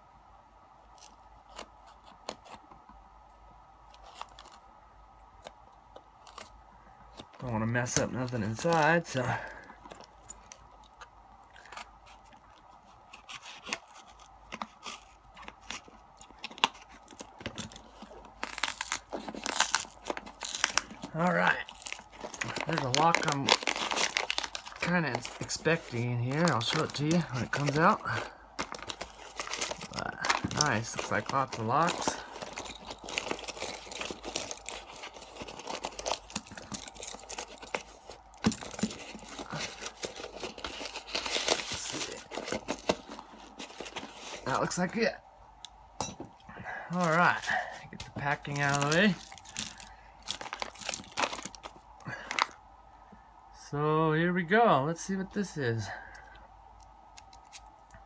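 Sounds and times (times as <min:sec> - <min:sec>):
packet crinkling and rustling: 0:03.9 - 0:04.7, 0:05.4 - 0:45.1, 0:46.4 - 0:52.6, 0:57.1 - 0:58.0
knife cutting tape and cardboard: 0:11.6 - 0:20.8
cardboard tearing: 0:11.6 - 0:44.7, 0:47.0 - 0:52.5.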